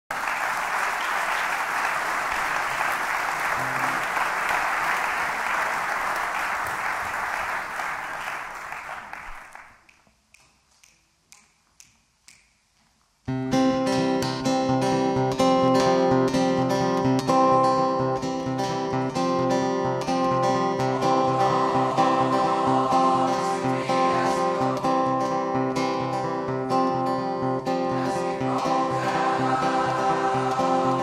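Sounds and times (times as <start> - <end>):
audience applauding: 0.1 - 9.9, 28.0 - 31.0.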